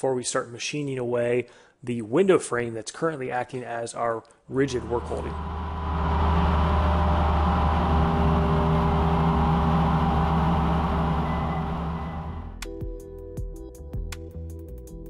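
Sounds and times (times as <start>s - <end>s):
milling machine cutting: 4.6s - 12.5s.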